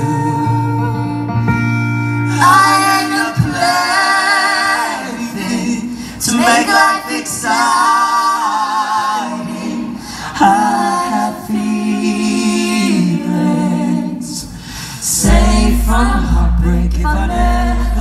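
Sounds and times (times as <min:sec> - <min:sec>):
woman singing through loudspeakers: 0:02.3 - 0:08.2.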